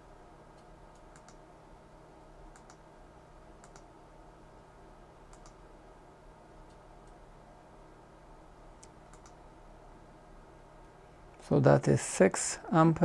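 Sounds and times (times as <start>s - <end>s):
faint hum: 0.0s - 13.0s
faint short clicks: 8.8s - 9.4s.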